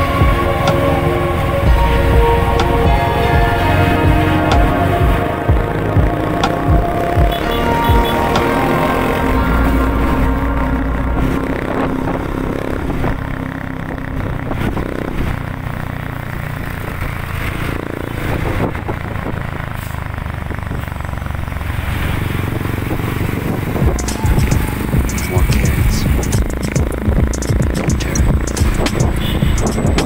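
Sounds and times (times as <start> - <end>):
motorcycle engine running: 0.0 - 30.0
road noise: 0.0 - 30.0
traffic rumble: 0.0 - 30.0.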